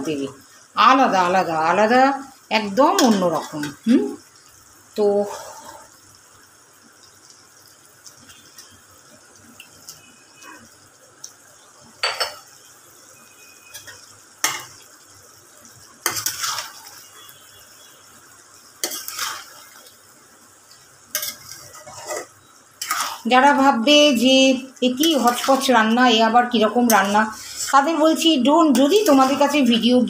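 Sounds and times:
spoon scraping metal pot: 21.2 - 23.3.

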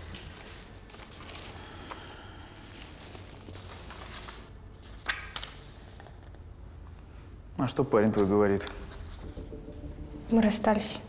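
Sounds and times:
papers rustling: 0.0 - 6.5, 8.2 - 9.8
low room hum: 0.0 - 11.0.

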